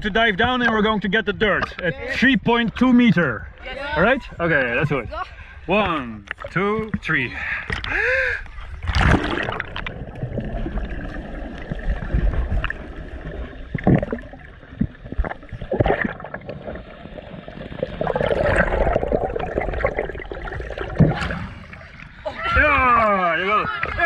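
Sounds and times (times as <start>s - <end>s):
underwater rumble: 4.2s - 24.0s
gurgling bubbles: 7.8s - 22.3s
splash: 8.8s - 17.0s, 17.7s - 22.6s.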